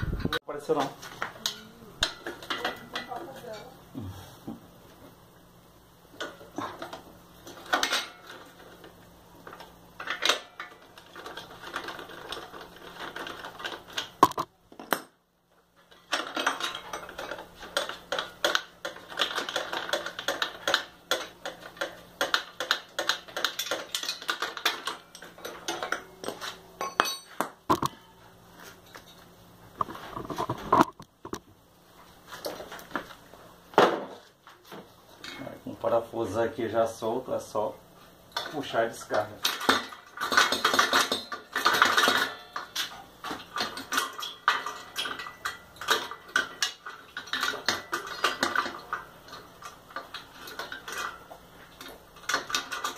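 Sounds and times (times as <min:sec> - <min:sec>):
tool clinking against metal: 0:22.6 - 0:28.2.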